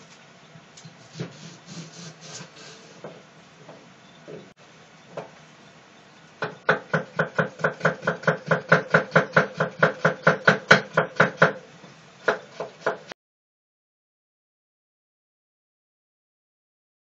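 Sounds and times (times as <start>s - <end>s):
knife chopping on wooden board: 6.4s - 11.6s, 12.3s - 13.1s.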